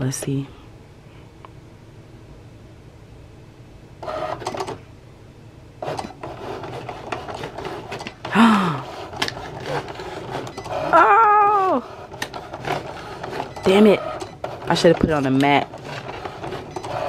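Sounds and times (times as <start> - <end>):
cutting machine motors whirring: 5.8 - 17.0.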